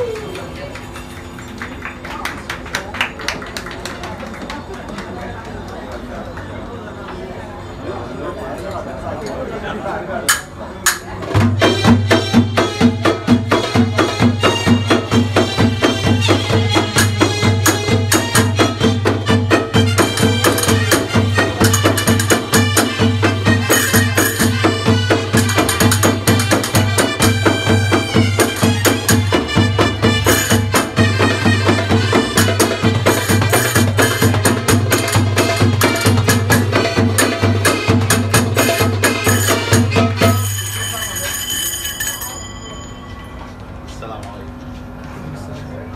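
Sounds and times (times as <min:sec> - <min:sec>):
frame drums with jingles: 0:11.1 - 0:43.9.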